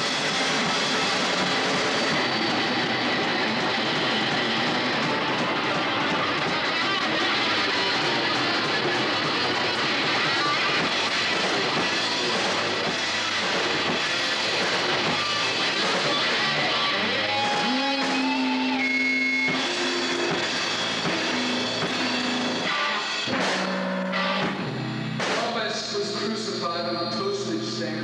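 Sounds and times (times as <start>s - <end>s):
drums: 0.0s - 28.0s
electric guitar: 0.0s - 28.0s
live rock band playing: 0.0s - 28.0s.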